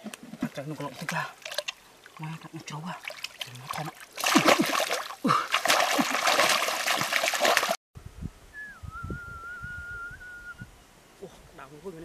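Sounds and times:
hands splashing in muddy water: 0:03.0 - 0:07.8
thin wavering whistle: 0:08.5 - 0:10.7.

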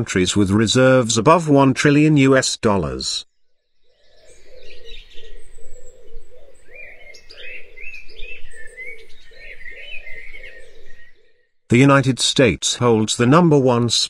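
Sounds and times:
high bird chirping: 0:03.6 - 0:11.6.

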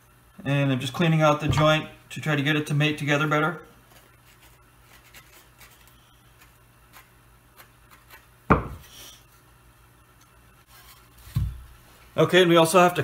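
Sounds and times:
sharp knock of wood: 0:08.5 - 0:08.8.

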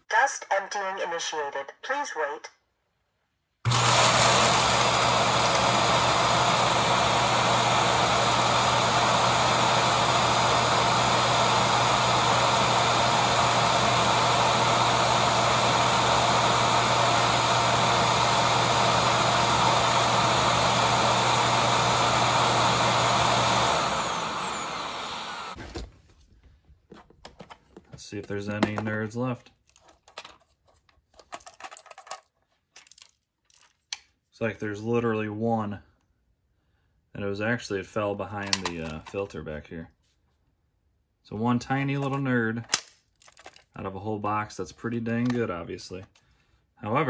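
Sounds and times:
suction motor running: 0:03.7 - 0:25.6.

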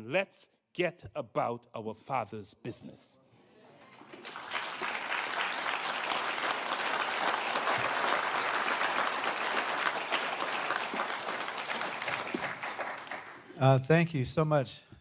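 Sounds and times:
audience applauding: 0:03.8 - 0:13.6.

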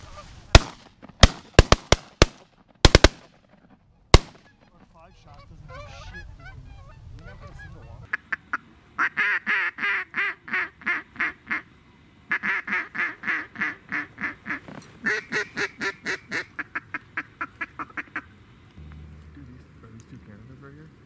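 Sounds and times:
duck call quacks: 0:05.7 - 0:11.7, 0:12.3 - 0:18.3.

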